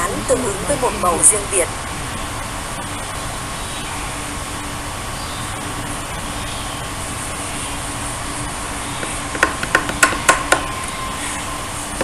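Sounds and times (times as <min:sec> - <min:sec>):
background hiss: 0:00.0 - 0:12.0
mallet striking chisel: 0:09.3 - 0:10.7.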